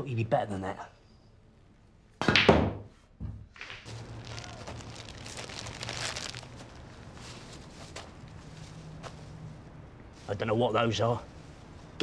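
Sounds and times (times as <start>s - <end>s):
pool cue striking balls: 2.2s - 2.9s
soft rustling and crinkling: 3.6s - 12.0s.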